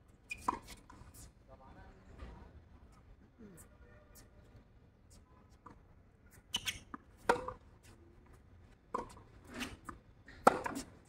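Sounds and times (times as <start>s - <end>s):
tennis ball struck by rackets: 7.2s - 7.6s, 10.3s - 10.9s.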